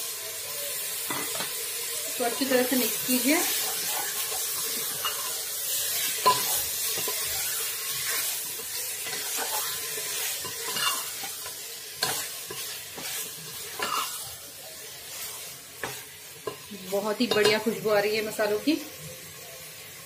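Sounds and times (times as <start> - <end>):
chicken sizzling in oil: 0.0 - 20.0
spatula scraping pot: 3.4 - 14.3.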